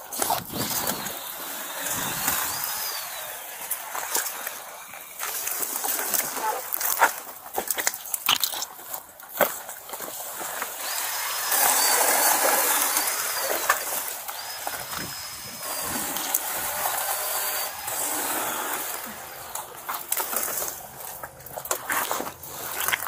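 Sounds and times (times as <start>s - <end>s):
branches rustling against camera: 0.0s - 23.0s
twigs snapping: 5.2s - 11.0s.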